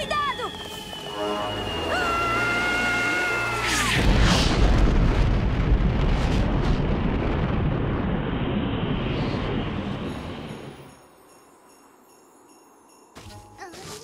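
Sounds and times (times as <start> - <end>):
cartoon character screaming: 1.9 - 4.1
rumbling explosion sound effect: 3.8 - 10.4.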